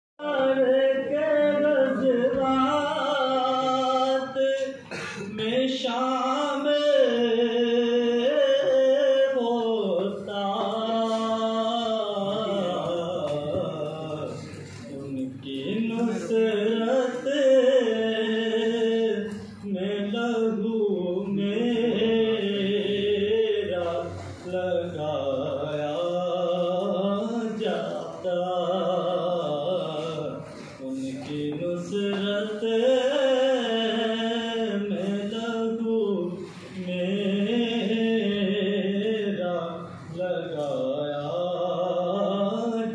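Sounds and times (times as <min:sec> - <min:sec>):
man singing into a microphone: 0:00.2 - 0:42.9.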